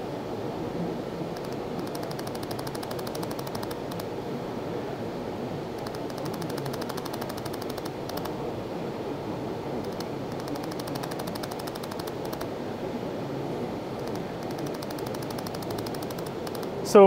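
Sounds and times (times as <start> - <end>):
fan-like hiss: 0.0 - 17.0
laser welder rapid ticks: 1.4 - 4.1, 5.8 - 8.3, 9.9 - 12.5, 14.0 - 16.7.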